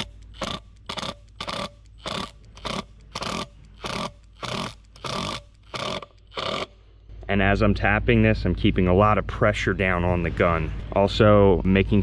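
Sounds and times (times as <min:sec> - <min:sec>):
impact driver bursts: 0:00.0 - 0:06.8.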